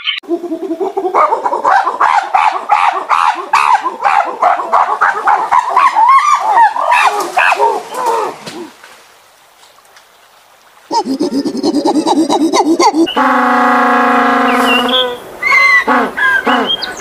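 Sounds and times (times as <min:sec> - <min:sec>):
monkeys calling: 0:00.0 - 0:08.8, 0:10.9 - 0:13.4.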